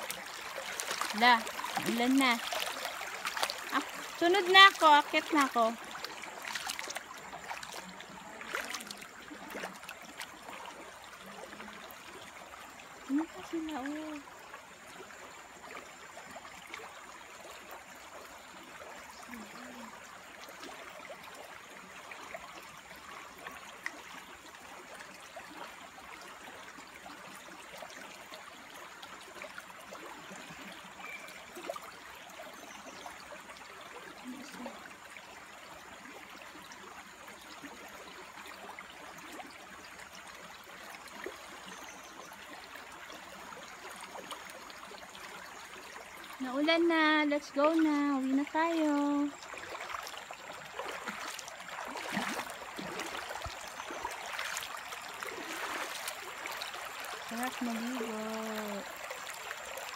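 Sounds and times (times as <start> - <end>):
stream rushing over pebbles: 0.0 - 59.9.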